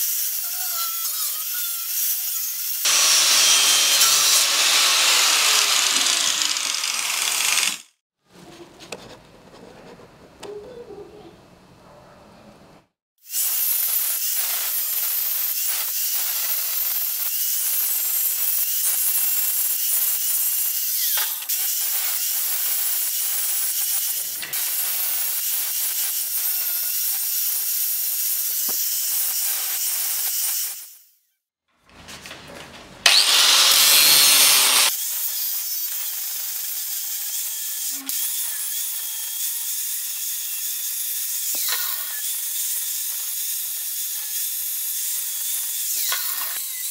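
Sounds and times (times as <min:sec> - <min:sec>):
angle grinder grinding steel: 0:00.0 - 0:08.0, 0:13.2 - 0:31.1, 0:33.0 - 0:46.9.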